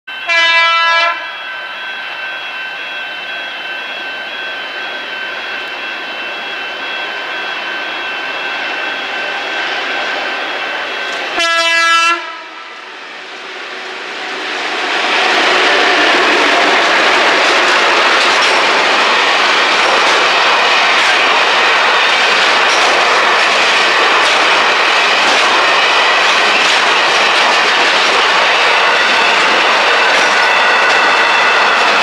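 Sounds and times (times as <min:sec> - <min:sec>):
train engine and wheel noise: 0:00.1 - 0:32.0
locomotive horn chord: 0:00.2 - 0:01.4, 0:11.3 - 0:12.7.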